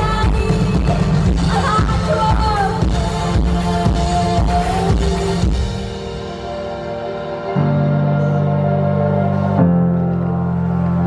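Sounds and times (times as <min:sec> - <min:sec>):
woman singing: 0:00.0 - 0:05.6
pop band playing: 0:00.0 - 0:11.0
synth keyboards: 0:00.0 - 0:11.0.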